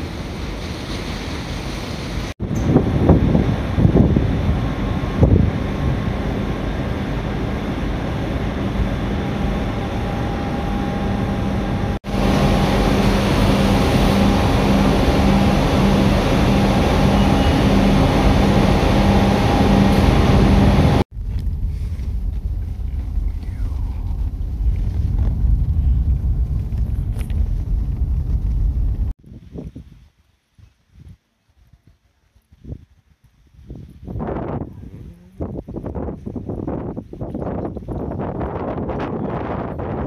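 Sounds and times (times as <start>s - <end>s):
ferry engines droning: 0.0s - 29.1s
car engine and road noise: 0.0s - 29.2s
wind on microphone: 2.4s - 40.0s.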